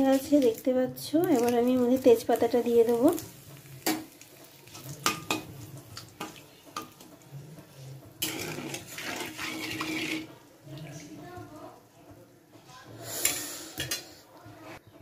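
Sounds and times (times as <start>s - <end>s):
leaves sizzling in hot oil: 0.0s - 7.1s, 8.1s - 10.8s
metal spatula scraping pan: 7.6s - 10.4s.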